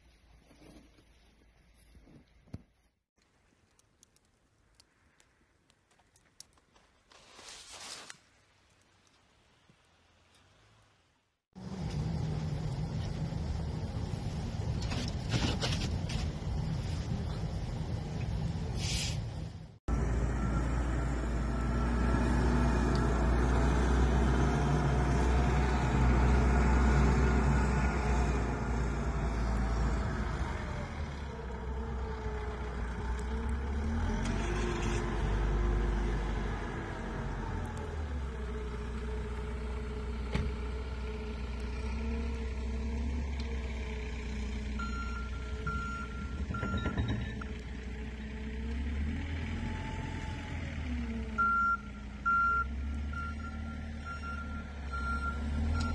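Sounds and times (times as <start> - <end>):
blade pushing snow: 7.1 - 8.2
diesel engine rumbling: 11.6 - 55.9.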